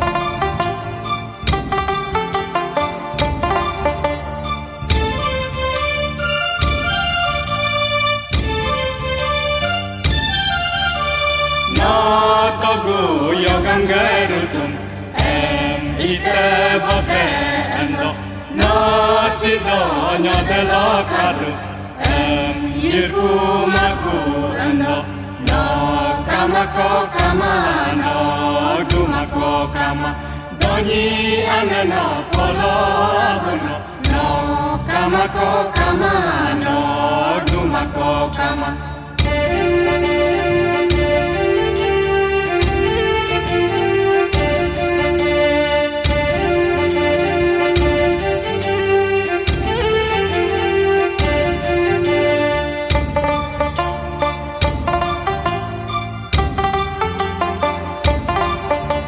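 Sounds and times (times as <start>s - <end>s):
low accompaniment: 0.0s - 59.0s
chant-like folk singing: 11.7s - 54.8s.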